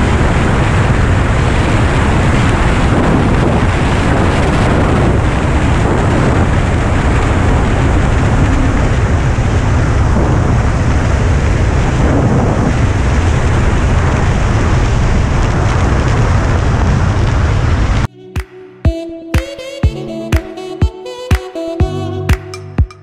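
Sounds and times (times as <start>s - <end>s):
wind rushing over microphone: 0.0s - 18.1s.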